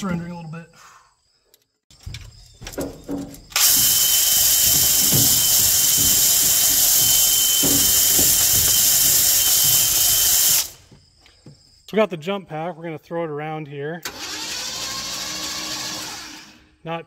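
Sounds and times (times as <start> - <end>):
low engine knocks: 1.9 - 10.0
knocks and clatters: 1.9 - 10.1
power drill whining: 3.1 - 10.8, 14.0 - 16.7.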